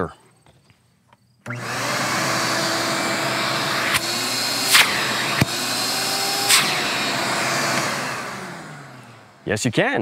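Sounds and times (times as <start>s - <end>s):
shop vacuum whining: 1.4s - 9.6s
sharp rushes or clicks: 3.8s - 8.2s.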